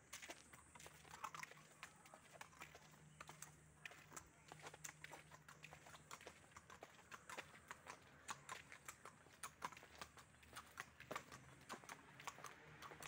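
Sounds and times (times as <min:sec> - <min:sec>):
horse hooves on pavement: 0:00.0 - 0:13.0.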